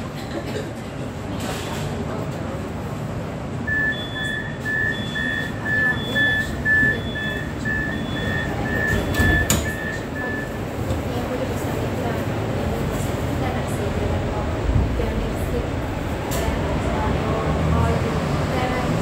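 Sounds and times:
low rumble of train: 0:00.0 - 0:19.0
short high electronic beeps: 0:03.7 - 0:10.6.

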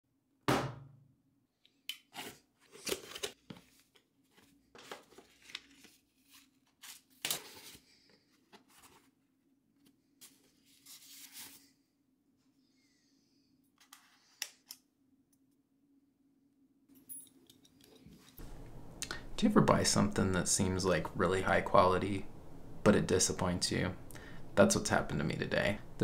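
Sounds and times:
paper and cardboard rustling: 0:02.2 - 0:09.3, 0:10.2 - 0:11.8.

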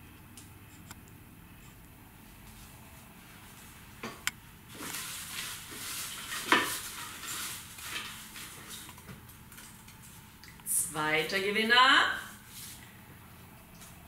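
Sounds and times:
paper rustling in a bowl: 0:04.7 - 0:10.3.

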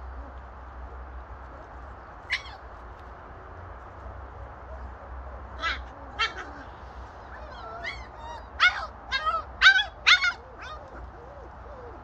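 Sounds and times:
puppy yelping: 0:02.3 - 0:02.7, 0:05.6 - 0:12.0.

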